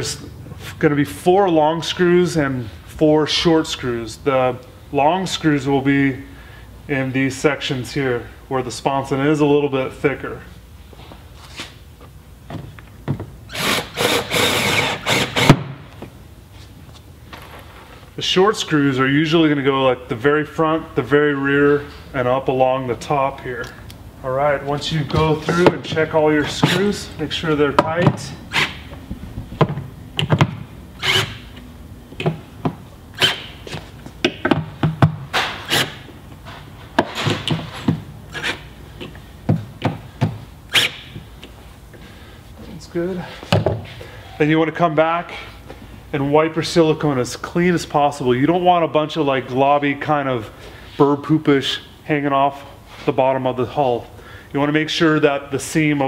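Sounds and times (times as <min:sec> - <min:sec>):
cordless drill driving a screw: 0:13.5 - 0:15.6.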